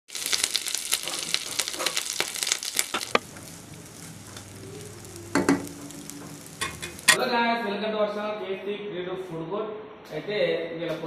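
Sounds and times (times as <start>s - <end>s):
rice sizzling: 0.0s - 7.2s
leaves crackling in hot oil: 0.1s - 7.2s
metal spatula stirring: 5.4s - 7.2s.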